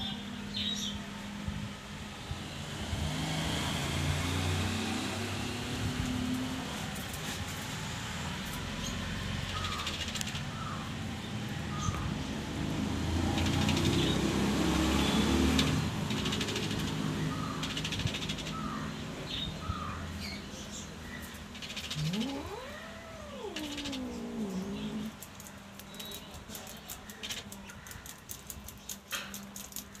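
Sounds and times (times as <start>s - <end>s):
cat growling: 21.6s - 25.2s
cat yowling: 21.8s - 25.2s.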